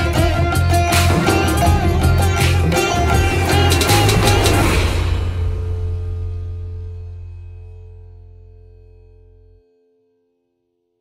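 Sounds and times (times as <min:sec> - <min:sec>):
background music with bass and beat: 0:00.0 - 0:08.1.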